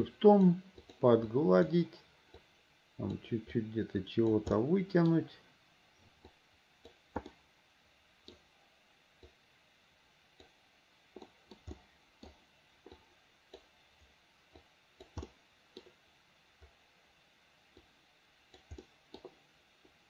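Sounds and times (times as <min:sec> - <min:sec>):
computer mouse clicks: 0:00.7 - 0:01.3, 0:02.3 - 0:03.2, 0:06.2 - 0:07.4, 0:08.2 - 0:08.5, 0:10.4 - 0:13.7, 0:14.5 - 0:16.0, 0:18.5 - 0:19.4.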